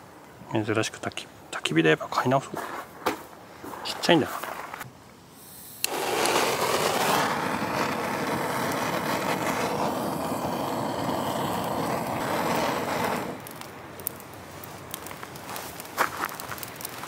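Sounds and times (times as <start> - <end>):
gas torch hissing: 5.3 - 17.0
gas torch ignition click: 5.4 - 6.5.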